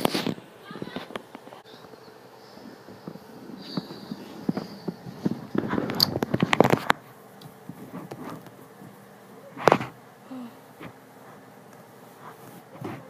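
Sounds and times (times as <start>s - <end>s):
toy handling rustles and knocks: 2.7s - 10.0s.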